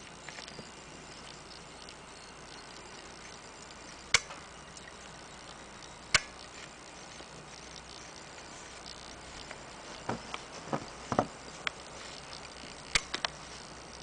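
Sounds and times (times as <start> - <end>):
faint steady hiss: 0.0 - 14.0
faint ticks: 0.0 - 14.0
sharp clicks: 0.0 - 14.0.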